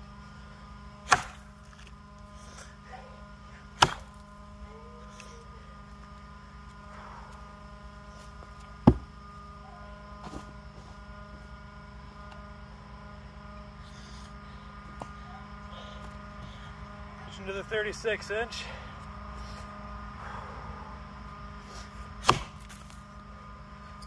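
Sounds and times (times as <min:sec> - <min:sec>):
steady low hum: 0:00.0 - 0:24.0
axe striking log: 0:01.0 - 0:01.9, 0:03.8 - 0:04.2, 0:08.8 - 0:09.1, 0:22.2 - 0:23.0.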